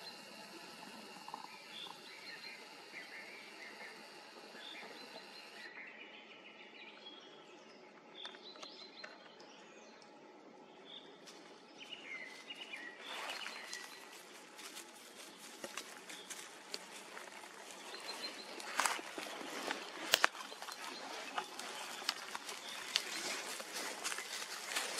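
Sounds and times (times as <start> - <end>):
birds chirping: 0.0 - 10.1, 10.7 - 24.9
steady outdoor hiss: 0.0 - 24.9
footsteps in dry leaves: 12.2 - 24.9.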